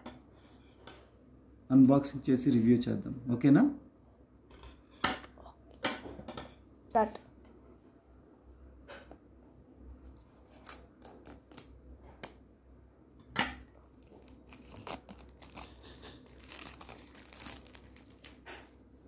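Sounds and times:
plastic shrink wrap crinkling: 13.8s - 18.9s
scissors cutting plastic: 13.9s - 18.7s.

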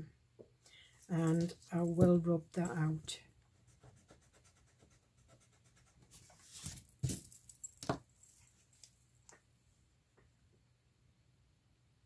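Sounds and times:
pencil scratching on paper: 3.5s - 6.5s.

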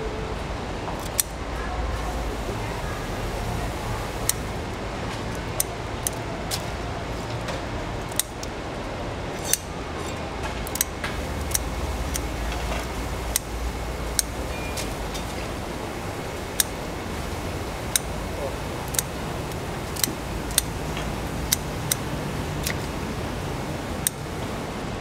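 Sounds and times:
kitchen shears snipping shell: 1.0s - 1.4s, 4.0s - 8.5s, 9.3s - 15.5s, 17.6s - 23.3s.

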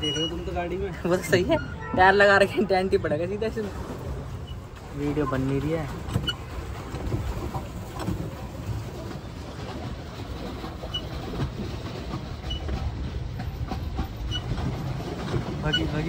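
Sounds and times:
paddle wheel churning water: 0.0s - 16.0s.

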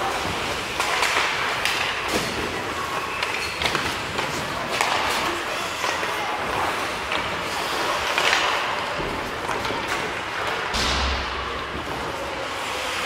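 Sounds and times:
skate blades scraping ice: 0.0s - 10.7s
sticks and puck clacking: 0.0s - 13.0s
low thud: 10.7s - 11.9s.

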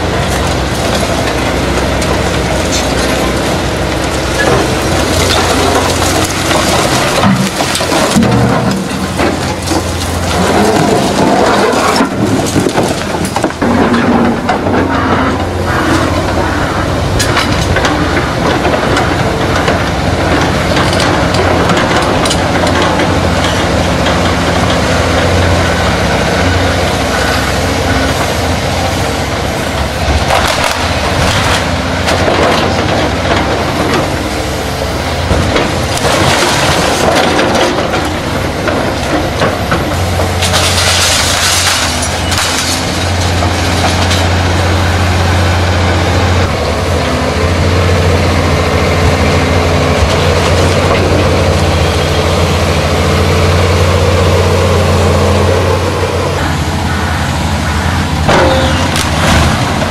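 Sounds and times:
excavator diesel engine running: 0.0s - 59.9s
bricks and rubble clattering: 0.3s - 25.4s, 30.0s - 34.2s, 35.2s - 45.2s, 58.3s - 59.9s.

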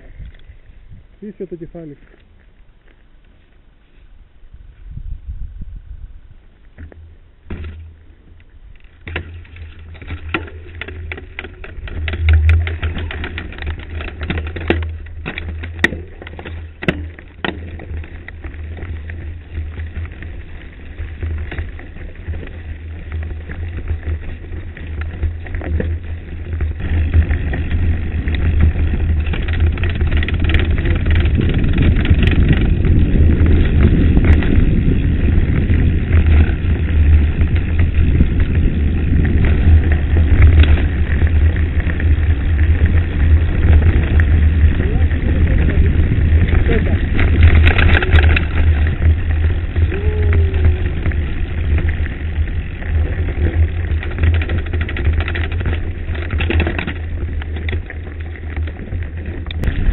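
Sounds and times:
wind buffeting microphone: 0.0s - 1.9s, 4.2s - 6.5s, 17.8s - 59.9s
bike rattling over stones: 6.2s - 59.9s
tyres crunching on gravel: 6.5s - 59.9s.

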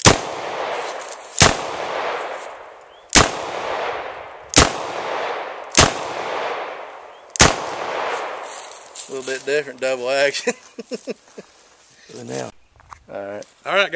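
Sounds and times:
gunshot echo: 0.0s - 8.8s.

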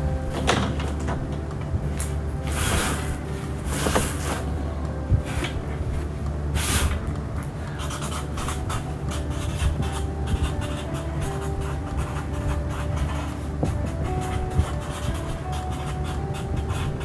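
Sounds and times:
steady low hum: 0.0s - 17.0s
markers stroking on paper: 7.8s - 17.0s.

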